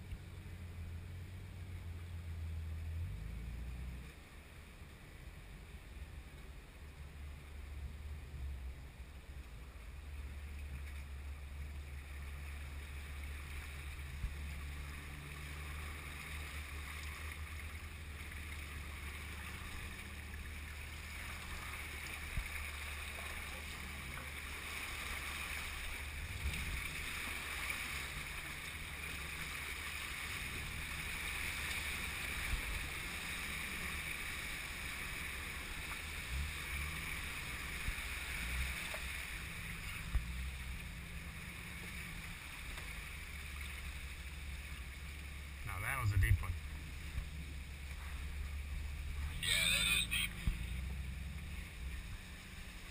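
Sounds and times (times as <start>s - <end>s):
car engine rumbling: 0.0s - 52.9s
water splashing against vehicle: 0.0s - 52.9s.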